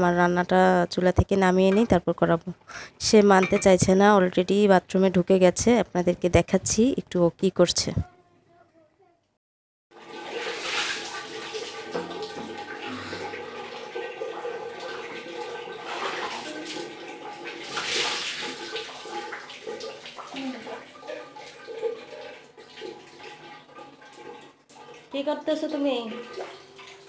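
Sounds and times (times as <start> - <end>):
water splashing in bathroom: 9.9 - 27.0.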